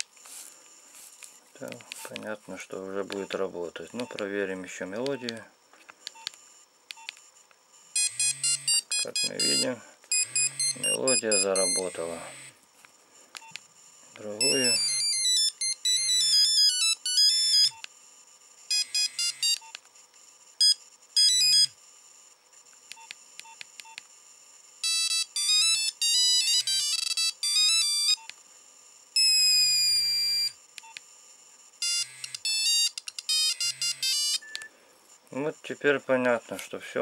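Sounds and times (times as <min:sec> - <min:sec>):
mobile phone ringtone melodies: 0:08.0 - 0:12.5, 0:14.4 - 0:17.8, 0:18.7 - 0:19.6, 0:20.6 - 0:21.7, 0:24.8 - 0:28.2, 0:29.2 - 0:30.6, 0:31.8 - 0:34.6.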